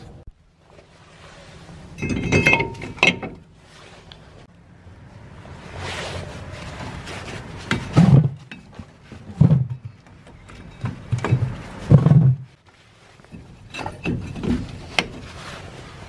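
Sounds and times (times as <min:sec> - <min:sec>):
jacket fabric rustling: 0:05.6 - 0:08.0, 0:11.0 - 0:13.6, 0:14.5 - 0:16.0.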